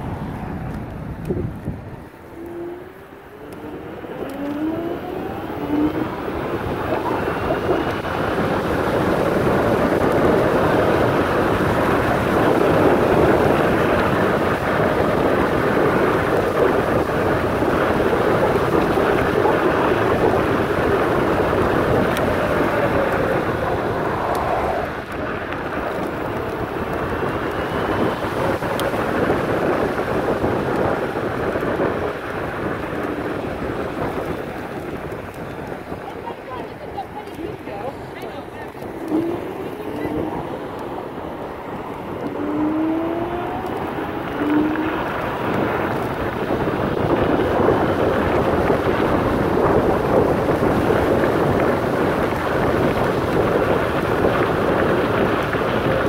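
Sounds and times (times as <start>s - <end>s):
scooter motor whine: 0.0s - 56.0s
wind and road noise: 0.0s - 56.0s.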